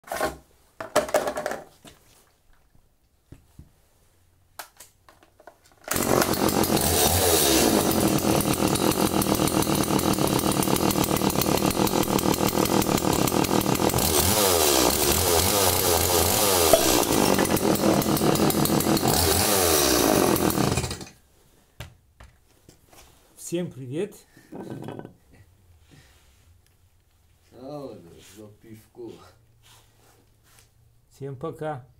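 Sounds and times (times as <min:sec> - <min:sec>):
chainsaw revving: 0:05.9 - 0:21.2.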